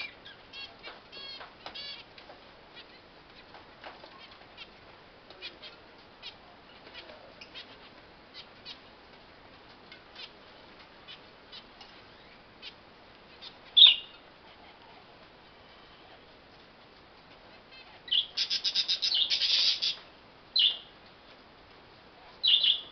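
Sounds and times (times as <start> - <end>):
finches calling: 11.0 - 14.8, 17.7 - 20.0, 20.6 - 20.9, 22.4 - 22.9.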